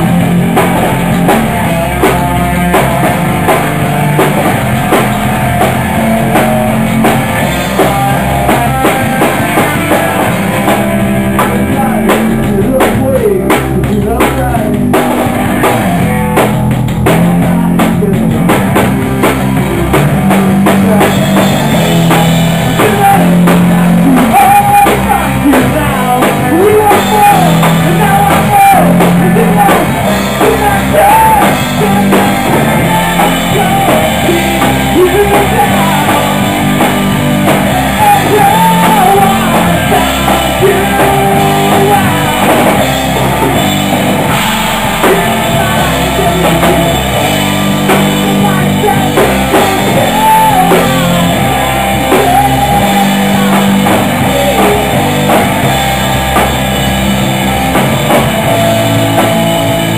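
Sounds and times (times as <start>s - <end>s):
bass guitar: 0.0s - 59.9s
drum kit: 0.0s - 59.9s
electric guitar: 0.0s - 59.9s
man singing into microphone: 7.4s - 10.4s, 11.3s - 15.4s, 17.6s - 18.7s, 20.4s - 55.6s.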